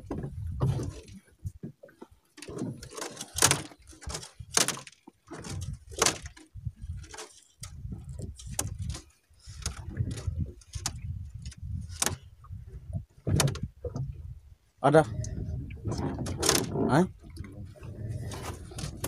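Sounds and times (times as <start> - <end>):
fishing line hauled over boat: 2.0 - 12.5.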